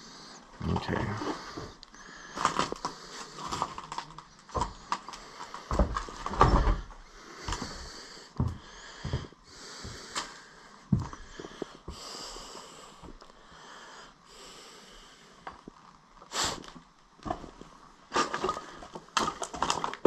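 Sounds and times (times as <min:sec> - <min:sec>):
footsteps on wooden floorboards: 0:04.5 - 0:04.9, 0:05.6 - 0:10.2, 0:10.9 - 0:12.1.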